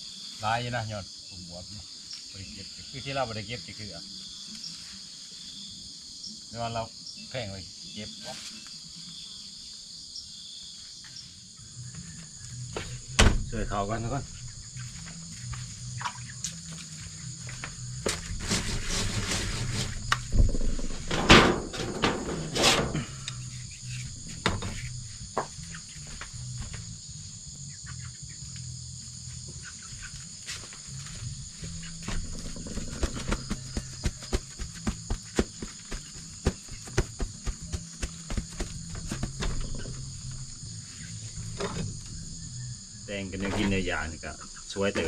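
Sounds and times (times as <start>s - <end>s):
insects calling: 0.0s - 45.0s
handling rustling and knocks: 18.0s - 23.0s, 31.6s - 40.6s.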